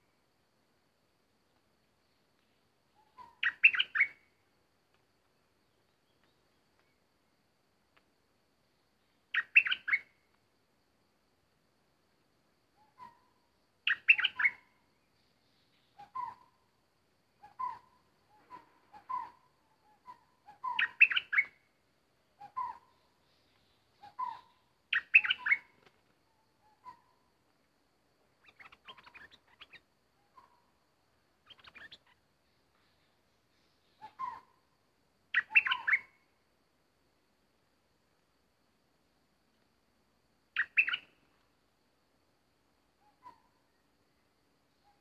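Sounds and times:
bird chirping: 0:01.5 - 0:04.4, 0:09.0 - 0:10.3, 0:12.8 - 0:16.7, 0:17.3 - 0:27.4, 0:28.3 - 0:36.3, 0:40.5 - 0:41.5, 0:42.8 - 0:45.0.

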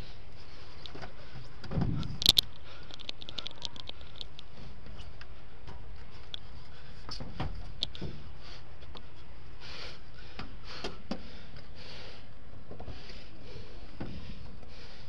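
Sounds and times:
wind rumble on microphone: 0:01.6 - 0:02.4.

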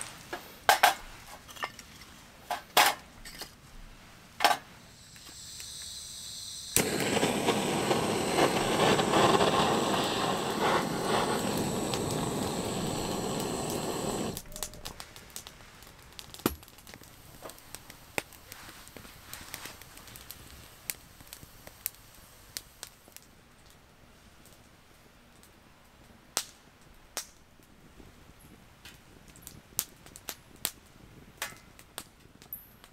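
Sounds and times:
faint gas hiss: 0:00.0 - 0:25.8
burning kindling crackling: 0:04.0 - 0:32.9
torch flame roaring: 0:04.9 - 0:14.5.

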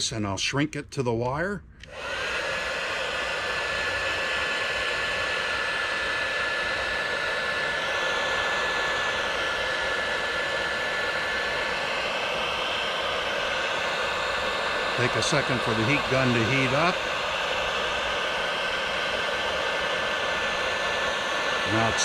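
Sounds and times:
heat gun fan blowing with whine: 0:00.0 - 0:22.0.

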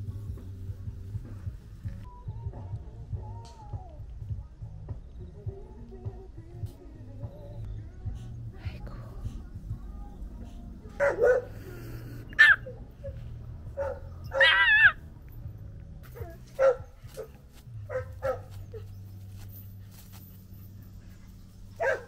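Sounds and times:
small dog barking and yipping: 0:11.0 - 0:11.6, 0:12.3 - 0:15.0, 0:16.1 - 0:18.9, 0:21.8 - 0:22.0
dog whining: 0:12.3 - 0:13.2, 0:13.8 - 0:15.0.

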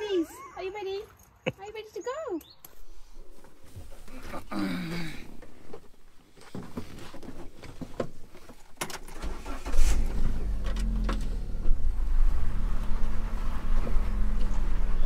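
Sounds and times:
car engine starting and idling: 0:07.6 - 0:15.0.

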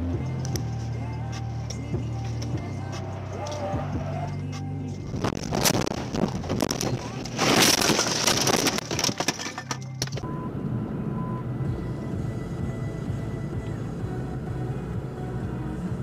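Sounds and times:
vehicle drone: 0:00.0 - 0:07.8, 0:10.2 - 0:16.0
voices: 0:01.1 - 0:05.0
car crash crunching: 0:05.1 - 0:10.2.

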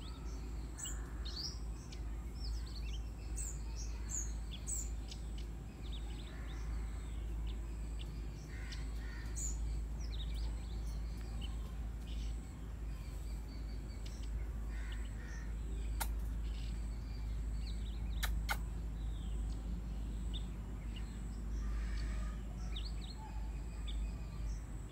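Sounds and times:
birds chirping: 0:00.0 - 0:24.9
harsh bird calls: 0:00.0 - 0:24.9
sharp clicks: 0:16.0 - 0:16.3, 0:18.1 - 0:18.7.

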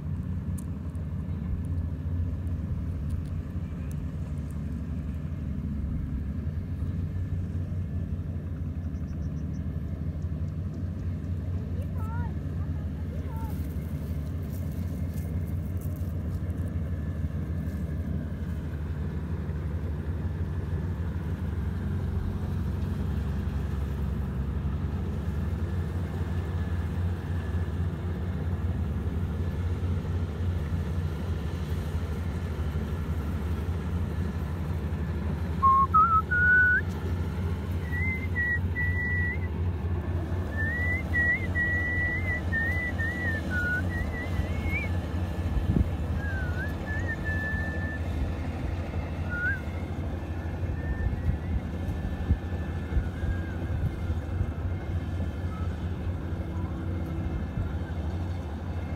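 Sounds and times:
harvester engine droning: 0:00.0 - 0:58.9
high whistle wavering: 0:35.6 - 0:36.9, 0:37.8 - 0:39.5, 0:40.5 - 0:45.0, 0:46.2 - 0:48.0, 0:49.1 - 0:51.9.

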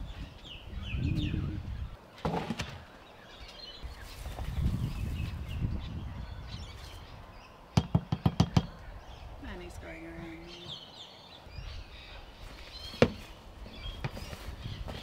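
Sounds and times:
birds chirping faintly: 0:00.0 - 0:15.0
sharp knocks: 0:07.8 - 0:08.8.

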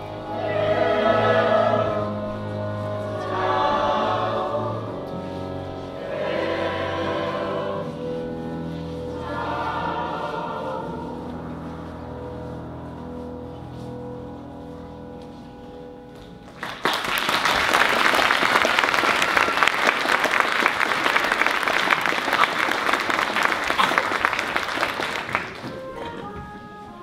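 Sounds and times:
opera chorus singing: 0:00.0 - 0:12.5
low sustained accompaniment: 0:00.0 - 0:16.7.

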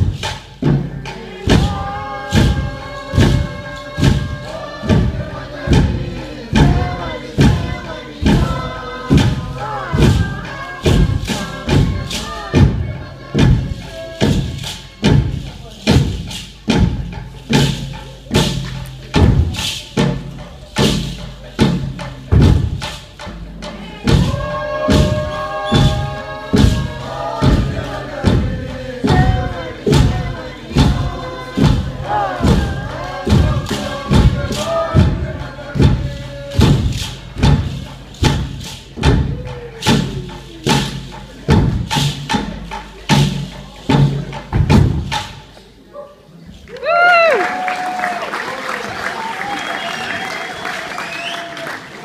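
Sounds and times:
group of voices chanting: 0:00.0 - 0:16.0, 0:23.6 - 0:37.8
heavy drum thumps: 0:00.0 - 0:45.5.

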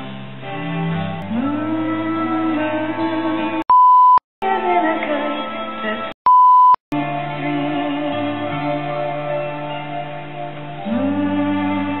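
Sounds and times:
soft music with held notes: 0:00.0 - 0:03.6, 0:07.0 - 0:12.0
censor bleep: 0:03.6 - 0:04.2, 0:06.2 - 0:06.8.

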